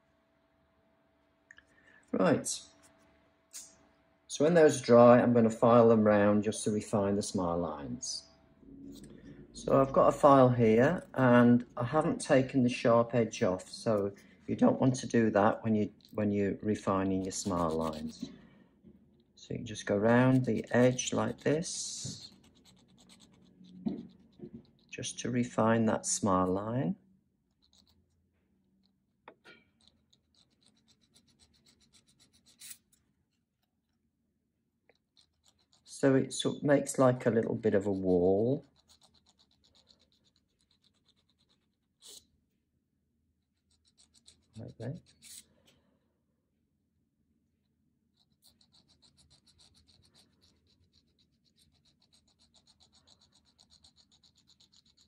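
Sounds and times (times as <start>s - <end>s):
nail file rasping: 16.9s - 18.3s, 19.8s - 25.1s, 27.5s - 28.2s, 29.5s - 33.7s, 34.9s - 35.9s, 37.7s - 42.3s, 43.4s - 45.5s, 48.1s - 55.0s.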